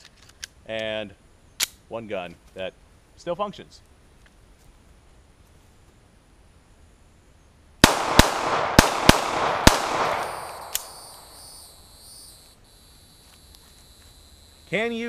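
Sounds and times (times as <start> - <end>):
pistol shots echoing: 7.8 - 11.6
sharp click: 10.2 - 11.3.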